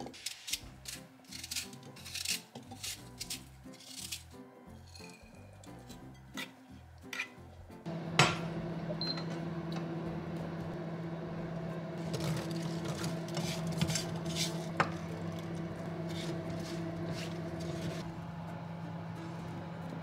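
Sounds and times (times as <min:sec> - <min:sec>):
induction hob humming: 0:07.8 - 0:20.0
frying pan knocking on hob: 0:08.1 - 0:08.6
spatula scraping and tapping pan: 0:12.0 - 0:18.0.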